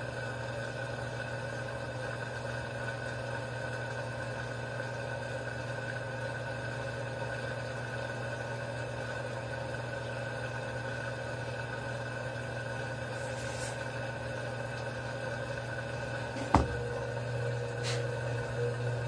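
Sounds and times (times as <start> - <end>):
washing machine humming: 0.0 - 19.0
washing machine drive clunk: 16.3 - 17.1.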